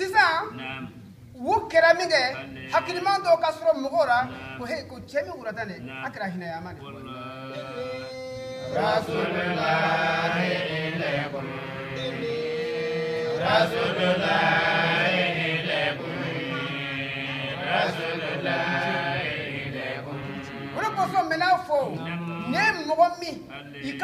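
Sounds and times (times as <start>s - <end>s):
man chanting melodically: 2.1s - 3.4s, 4.0s - 9.3s.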